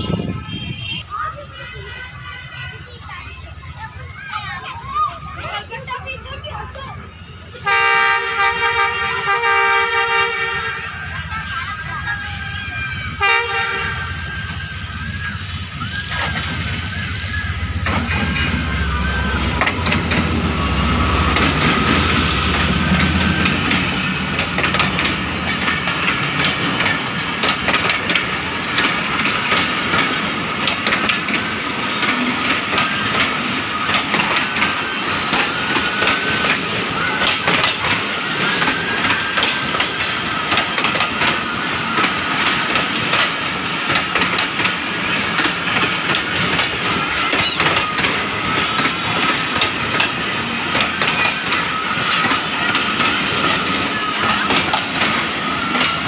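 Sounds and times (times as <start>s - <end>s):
diesel locomotive rumble: 0.0s - 56.0s
train rumble: 0.0s - 56.0s
train wheels clicking over rail joints: 11.2s - 56.0s
thin wavering squeal: 13.9s - 24.3s.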